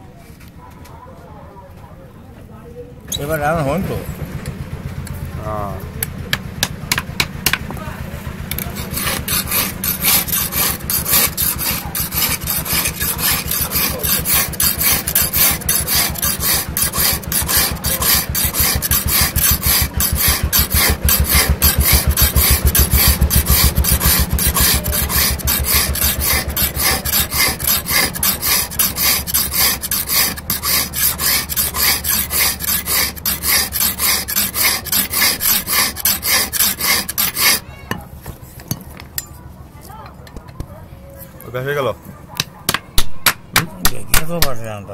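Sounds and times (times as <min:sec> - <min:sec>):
hand file rasping on steel blade: 0:08.5 - 0:37.7.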